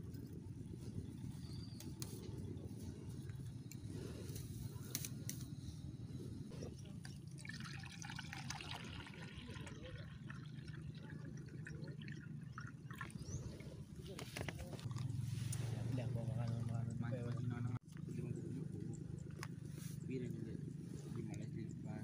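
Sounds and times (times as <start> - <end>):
low background rumble: 0.0 - 22.0
water pouring into fish tank: 7.2 - 13.2.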